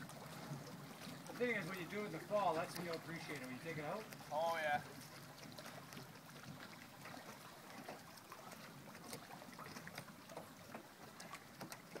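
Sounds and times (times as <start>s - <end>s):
small splashing ticks: 0.0s - 4.3s
water lapping against boat hull: 0.0s - 12.0s.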